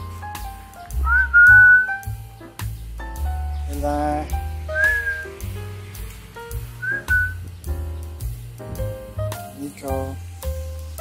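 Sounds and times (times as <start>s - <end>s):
whistled melody: 0.0s - 5.8s, 6.5s - 9.4s
bass notes: 0.0s - 11.0s.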